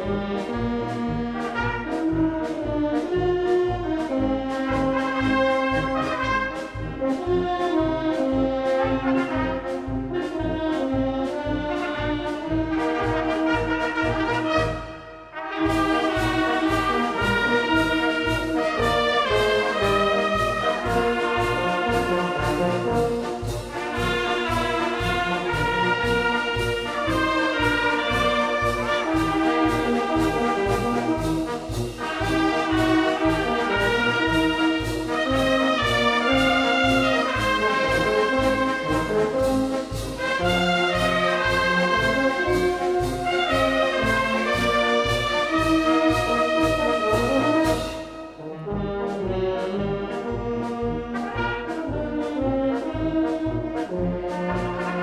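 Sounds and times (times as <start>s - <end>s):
percussion march beat: 0.0s - 55.0s
wind band playing a march: 0.0s - 55.0s.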